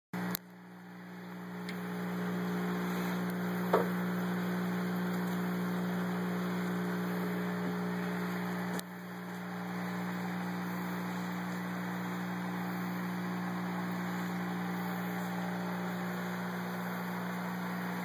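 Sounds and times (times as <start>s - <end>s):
aquarium pump humming: 0.2s - 18.0s.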